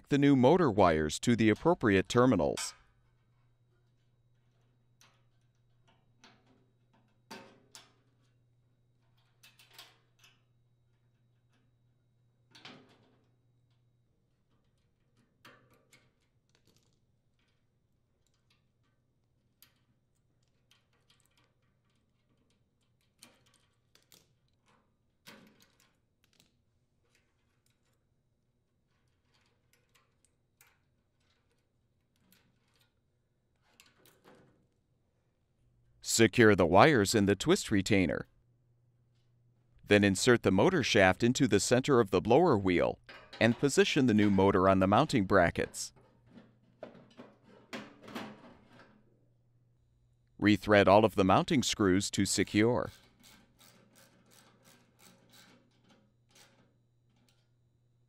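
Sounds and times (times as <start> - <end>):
wires clicking and rustling: 28.8 - 34.8.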